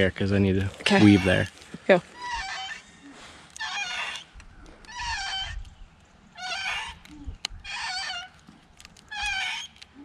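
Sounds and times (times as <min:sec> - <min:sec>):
animal wavering high cry: 0:03.6 - 0:04.3, 0:04.9 - 0:05.6, 0:06.4 - 0:08.4, 0:09.1 - 0:09.7.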